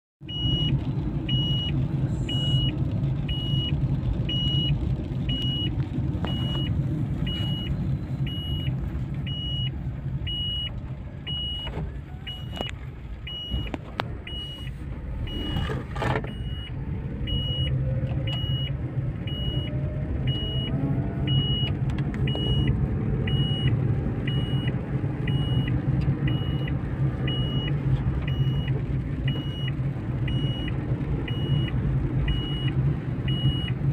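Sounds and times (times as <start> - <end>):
car engine and road rumble: 0.2 - 33.9
electronic warning beeps: 12.3 - 18.7, 22.3 - 22.7, 24.3 - 24.7, 25.3 - 27.7, 28.3 - 28.7, 29.3 - 33.8.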